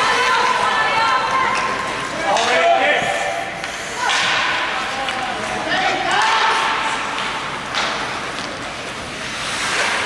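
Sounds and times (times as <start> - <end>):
clacks of sticks and puck: 0.1 - 10.0
skates scraping on ice: 4.8 - 10.0.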